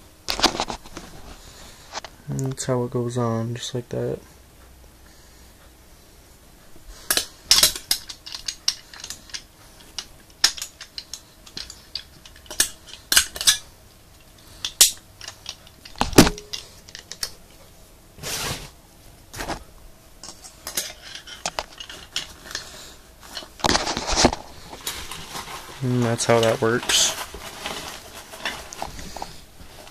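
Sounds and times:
metal instruments clinking: 7.1 - 17.4, 20.2 - 29.9
brushing handling noise: 18.2 - 18.8, 20.2 - 29.9.

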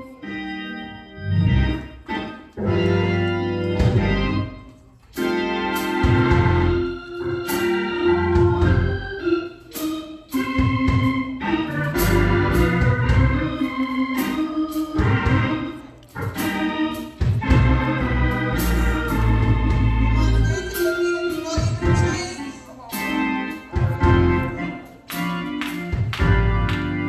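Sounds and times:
organ playing held chords: 0.0 - 27.0
heavy bass line: 17.5 - 20.7.

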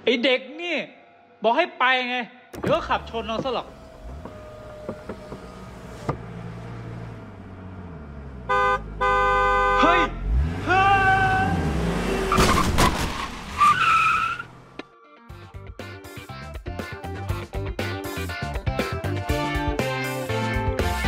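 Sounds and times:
tyres screeching: 2.6 - 7.2, 10.4 - 14.8
car engine revving: 2.6 - 14.8
car horn blasts: 8.4 - 11.3
crash: 12.3 - 13.8.

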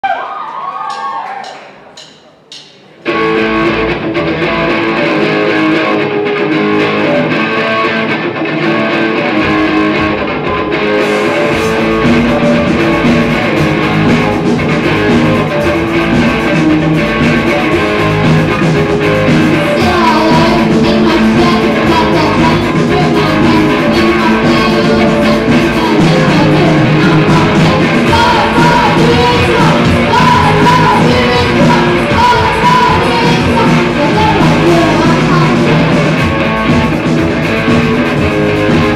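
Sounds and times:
drums: 0.0 - 38.9
bass guitar: 3.0 - 38.9
electric guitar: 3.0 - 38.9
person singing: 18.5 - 36.3.

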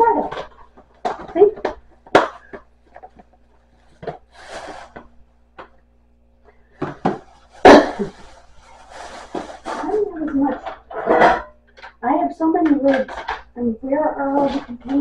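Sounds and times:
plastic containers knocking and clicking: 0.0 - 4.3, 6.8 - 7.3, 9.3 - 13.6, 14.2 - 15.0
plastic containers clattering: 0.0 - 5.8, 6.7 - 15.0.

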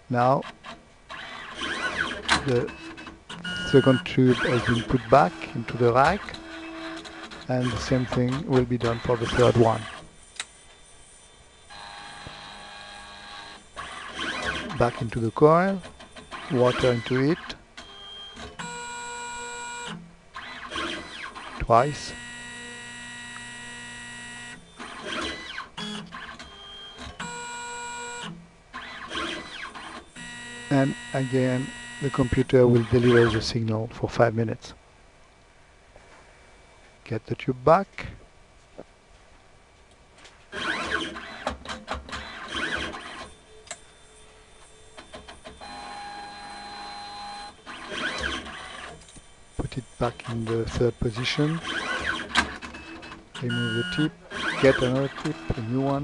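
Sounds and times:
robot motors whirring: 3.6 - 10.1, 11.0 - 17.5, 40.5 - 43.4, 45.0 - 56.0.

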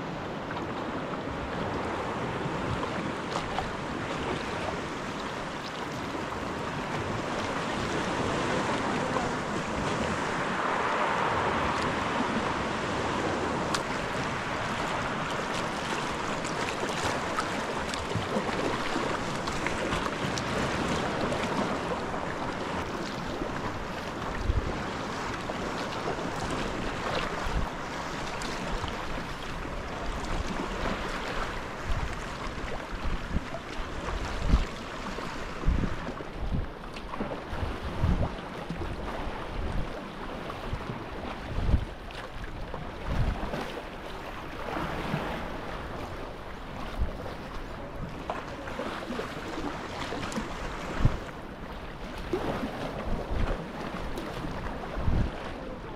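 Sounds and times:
water lapping against kayak hull: 0.0 - 55.9
wind rumbling on microphone: 0.0 - 55.9.

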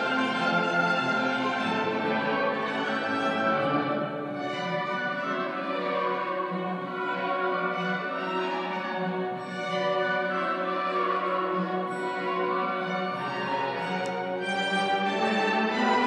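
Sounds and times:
orchestra playing classical music: 0.0 - 16.0.

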